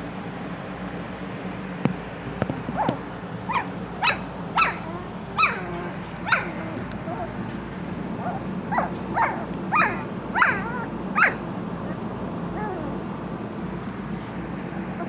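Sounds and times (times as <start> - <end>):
puppies whining and yipping: 2.7 - 13.0.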